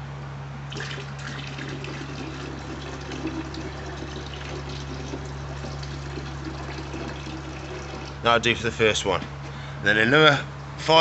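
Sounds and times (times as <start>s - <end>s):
water pouring and splashing: 0.7s - 8.2s.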